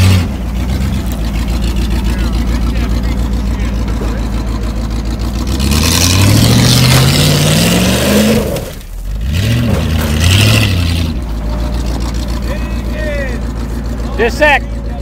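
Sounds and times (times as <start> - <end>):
car engine idling and revving: 0.0 - 15.0.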